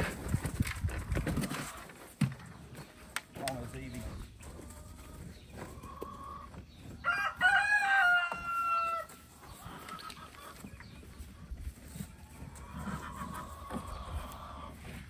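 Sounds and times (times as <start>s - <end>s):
rooster crowing: 7.0s - 9.1s.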